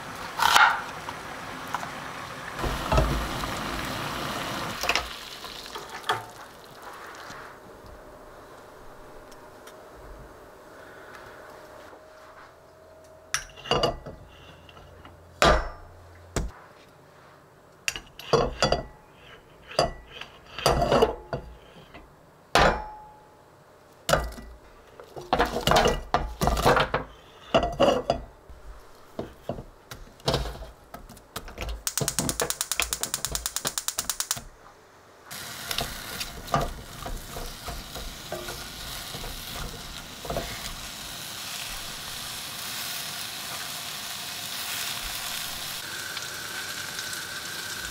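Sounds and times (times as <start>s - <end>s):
butter and onions sizzling: 0.0s - 7.6s, 35.3s - 47.9s
gas stove igniter clicking: 31.9s - 34.5s.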